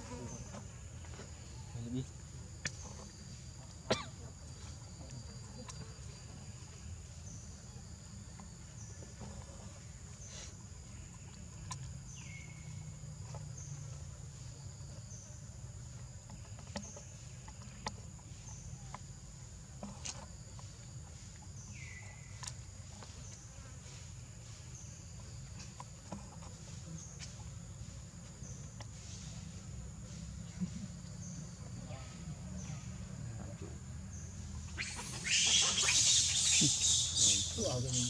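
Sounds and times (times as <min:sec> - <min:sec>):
high-pitched insect drone: 0:34.8 - 0:38.0.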